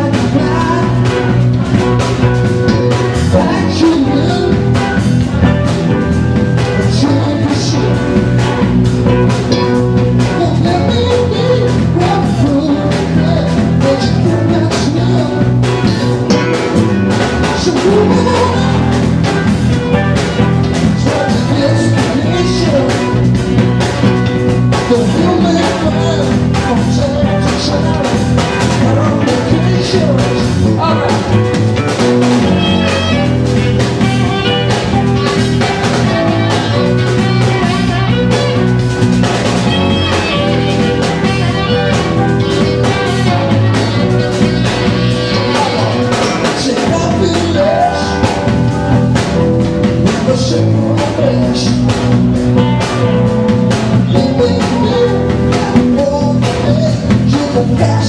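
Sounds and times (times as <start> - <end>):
drum beat: 0.0 - 58.0
keyboard: 0.0 - 58.0
live band playing: 0.0 - 58.0
person singing: 0.0 - 58.0
saxophone: 0.0 - 58.0.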